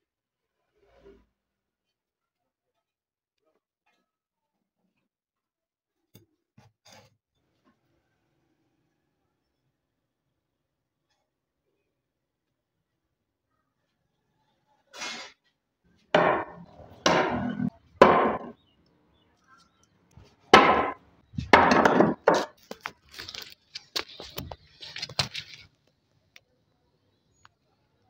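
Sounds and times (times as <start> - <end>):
blade chopping into wood: 20.6 - 22.5.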